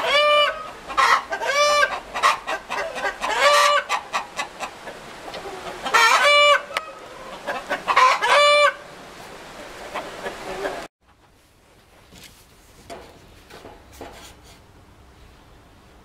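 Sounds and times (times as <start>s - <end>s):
chickens calling: 0.0s - 10.9s
chickens clucking: 0.0s - 10.9s.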